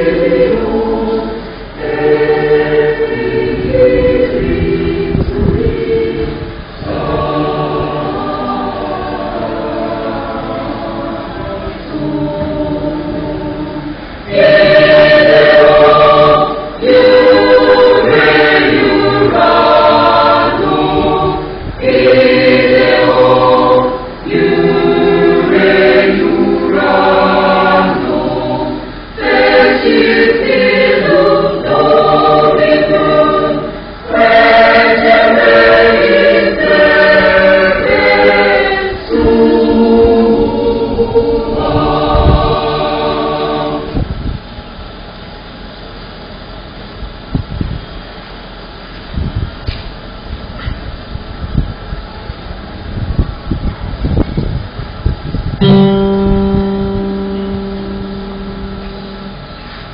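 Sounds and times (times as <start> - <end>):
church choir singing: 0.0 - 44.3, 55.6 - 59.9.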